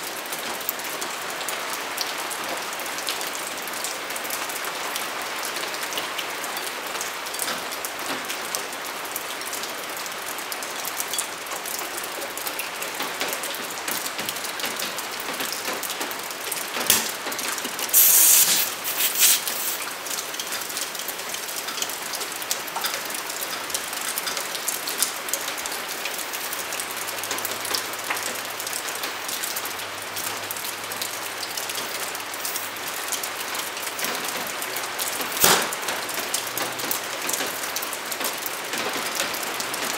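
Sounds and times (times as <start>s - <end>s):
air hose inflating tire: 17.9s - 19.9s
fine crackle of clicks: 20.1s - 30.3s.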